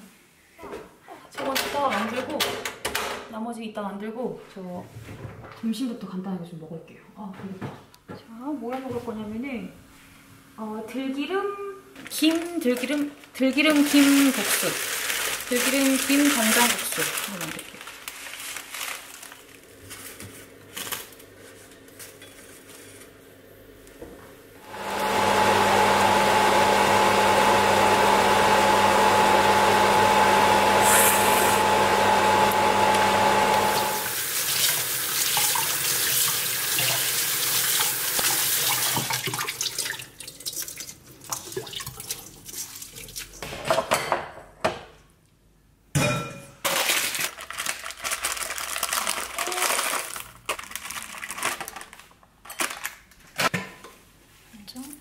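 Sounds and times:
rushing tap water: 30.8s - 43.2s.

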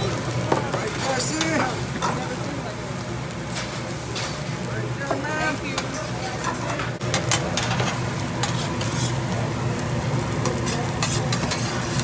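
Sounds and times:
rice sizzling on griddle: 0.0s - 12.0s
metal spatula scraping and tapping: 5.8s - 9.2s, 10.4s - 12.0s.

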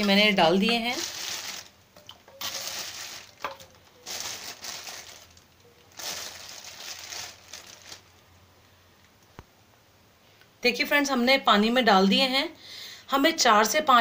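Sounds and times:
plastic bag crinkling: 0.0s - 8.4s.

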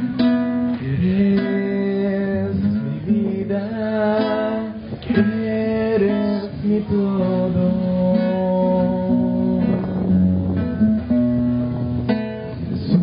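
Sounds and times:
acoustic guitar strummed: 0.0s - 13.0s
person singing a hymn: 0.7s - 10.2s.

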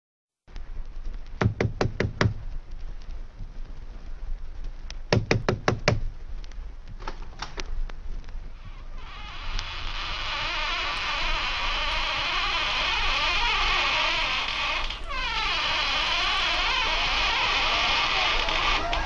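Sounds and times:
sharp knocks: 1.4s - 2.4s, 5.1s - 6.1s.

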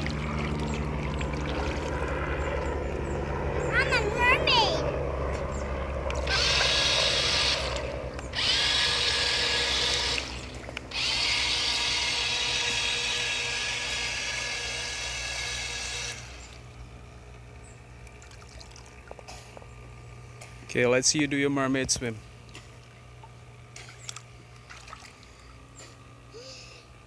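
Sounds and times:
toy truck electric motor whining: 6.2s - 16.5s.

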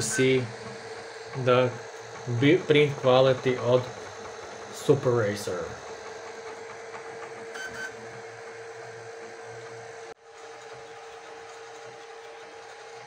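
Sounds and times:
three d printer whining: 0.0s - 13.0s.

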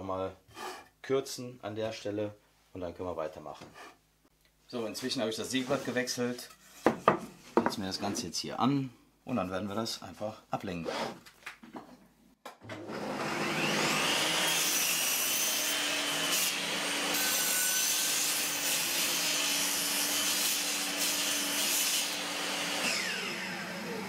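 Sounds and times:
table saw motor running: 12.8s - 17.9s, 21.4s - 24.0s
saw blade cutting wood: 13.0s - 23.7s.

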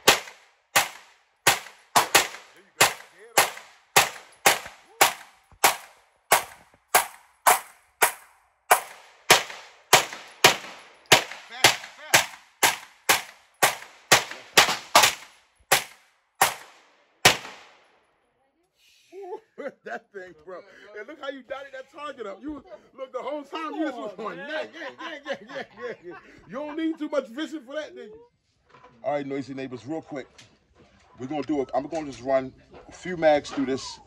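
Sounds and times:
pistol shots with echo: 0.0s - 18.0s.

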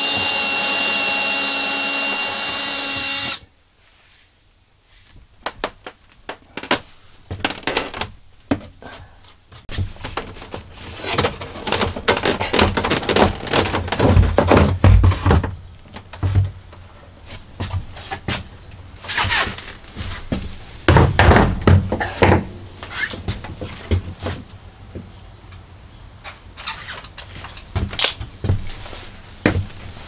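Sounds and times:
plastic knocking and scraping: 9.7s - 16.6s.

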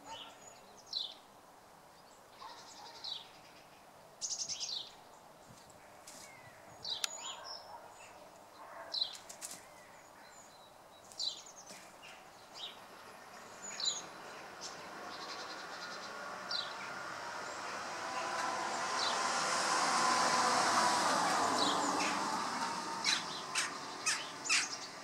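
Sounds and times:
vehicle engine and tyre noise: 12.6s - 25.0s
bird calling: 21.5s - 25.0s.

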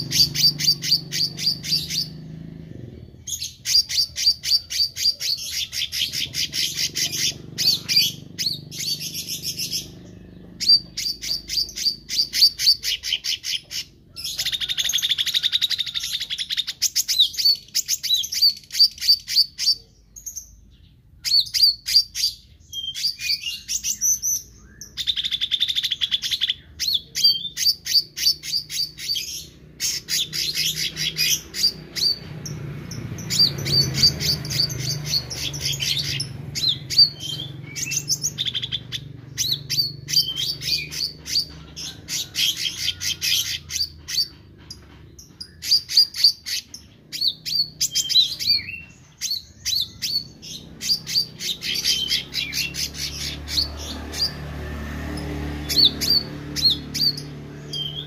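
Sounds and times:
bird singing rapid chirps and trills: 0.0s - 58.0s.

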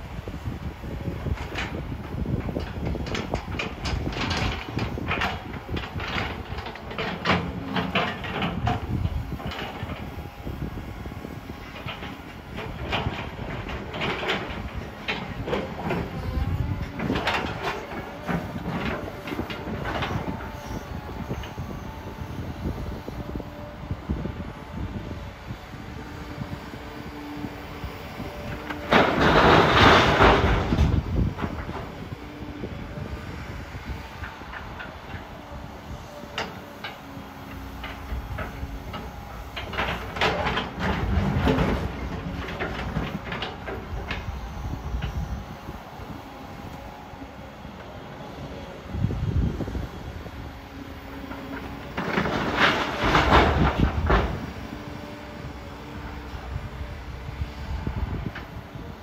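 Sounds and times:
diesel engine running: 0.0s - 59.0s
faint hydraulic hum: 30.4s - 59.0s.

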